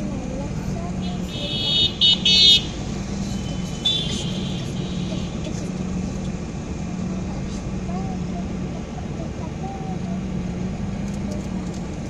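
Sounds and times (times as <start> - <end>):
street traffic hum: 0.0 - 12.0
vehicle horn honking: 1.0 - 5.4.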